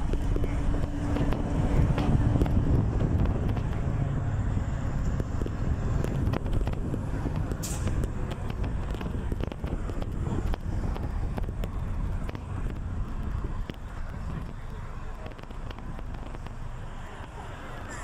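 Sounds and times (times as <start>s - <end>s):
bus rumbling in motion: 0.0s - 18.0s.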